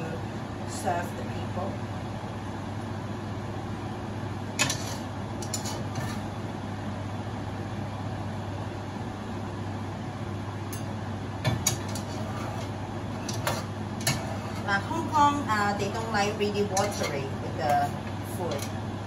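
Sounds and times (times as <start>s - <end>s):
low kitchen hum: 0.0s - 19.0s
metal spatula scraping a wok: 4.6s - 6.4s, 11.9s - 14.8s.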